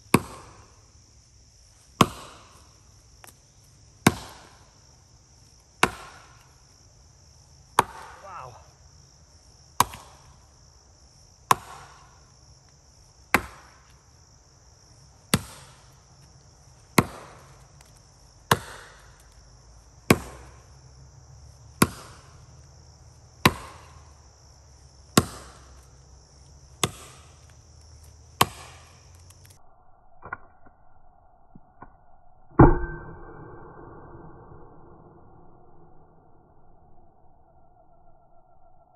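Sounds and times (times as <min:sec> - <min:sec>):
insects chorus: 0:00.0 - 0:30.2, 0:34.6 - 0:38.9
axe chopping wood: 0:00.1 - 0:00.7, 0:02.0 - 0:02.6, 0:04.0 - 0:04.6, 0:05.8 - 0:06.4, 0:07.8 - 0:08.5, 0:09.8 - 0:10.3, 0:11.5 - 0:12.2, 0:13.3 - 0:13.9, 0:15.3 - 0:15.8, 0:17.0 - 0:19.0, 0:20.1 - 0:20.6, 0:21.8 - 0:22.4, 0:23.4 - 0:24.0, 0:25.1 - 0:25.8, 0:26.7 - 0:27.5, 0:28.3 - 0:29.2.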